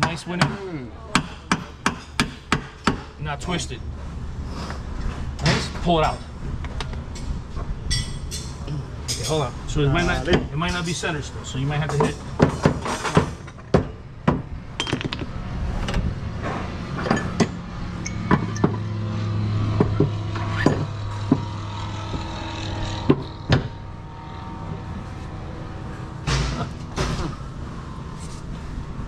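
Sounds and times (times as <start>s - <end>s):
low machine hum: 13.9s - 29.0s
metal tool clinks and knocks: 17.0s - 19.0s.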